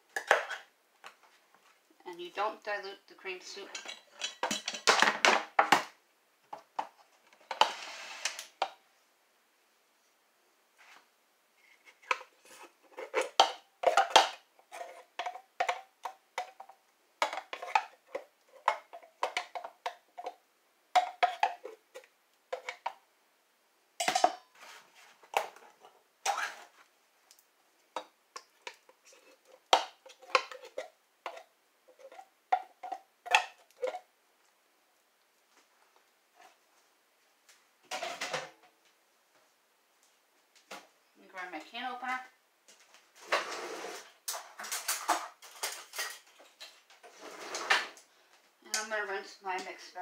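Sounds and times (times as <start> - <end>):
wooden spoon scraping metal can: 11.6 - 15.8, 24.5 - 26.8, 28.6 - 34.0, 43.2 - 48.0.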